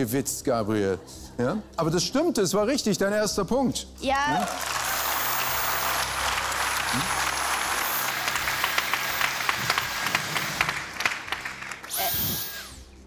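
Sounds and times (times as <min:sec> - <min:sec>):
audience applauding: 0:04.3 - 0:12.7.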